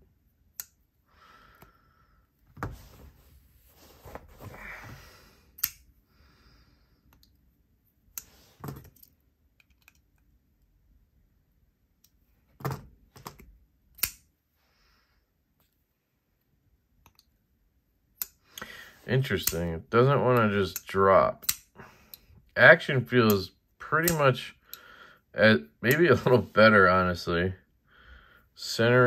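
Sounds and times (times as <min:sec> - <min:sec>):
soft rubbing of handling: 0:02.6 - 0:04.9
folding knife blade clicks: 0:05.6 - 0:05.8, 0:14.0 - 0:14.2.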